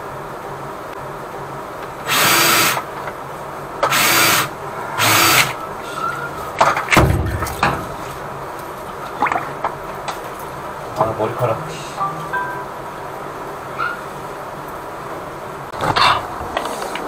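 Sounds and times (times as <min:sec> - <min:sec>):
cable knocking and thudding: 0:06.6 - 0:08.0.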